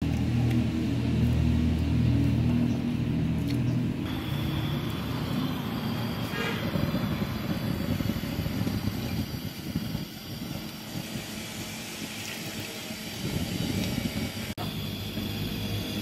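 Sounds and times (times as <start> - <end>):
vehicle engine hum: 0.0 - 10.8.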